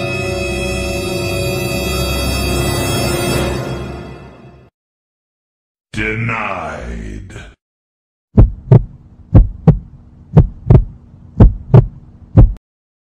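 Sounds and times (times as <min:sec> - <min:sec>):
heartbeat thumps: 0:08.3 - 0:12.6.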